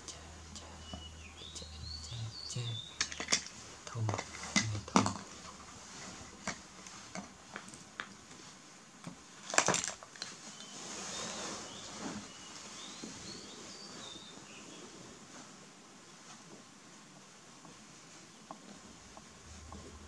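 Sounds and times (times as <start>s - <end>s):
high chirps: 0.5s - 3.3s
plastic toys clattering: 3.0s - 5.7s, 9.4s - 10.4s.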